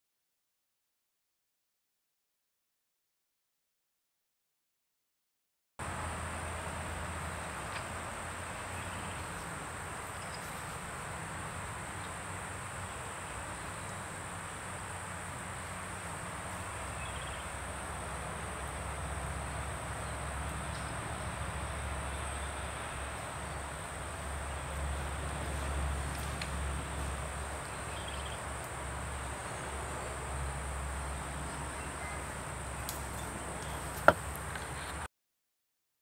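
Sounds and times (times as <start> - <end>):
low outdoor rumble: 5.8 - 35.1
insect trill: 8.2 - 34.2.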